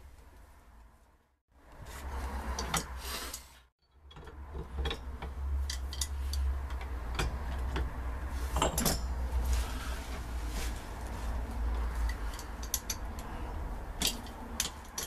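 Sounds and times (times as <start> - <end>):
metal tools clinking and scraping: 3.8 - 9.6, 11.8 - 15.0.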